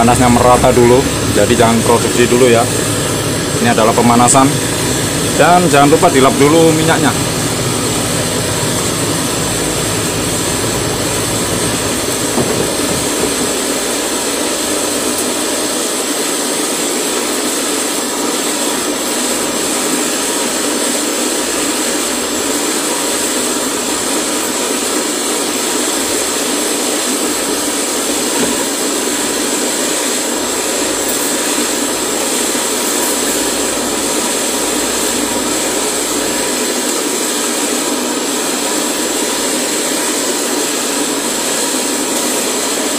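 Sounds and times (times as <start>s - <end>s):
cotton candy machine running: 0.0s - 42.9s.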